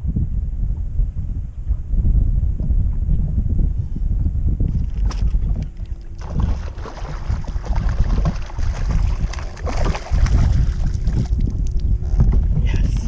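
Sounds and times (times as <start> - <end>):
wind buffeting microphone: 0.0 - 13.0
fish splashing in water: 6.2 - 11.4.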